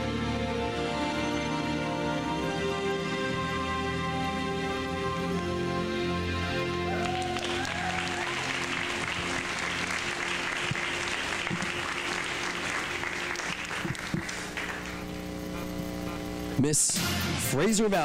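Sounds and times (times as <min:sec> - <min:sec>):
soft background music: 0:00.0 - 0:13.8
audience applauding: 0:06.8 - 0:15.3.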